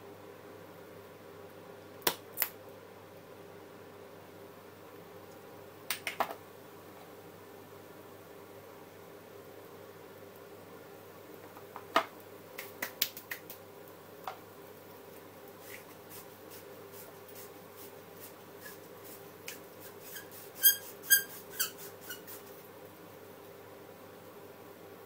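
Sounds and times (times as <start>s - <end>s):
faint steady hum: 0.0s - 25.0s
seasoning shaker clicking: 15.5s - 22.6s.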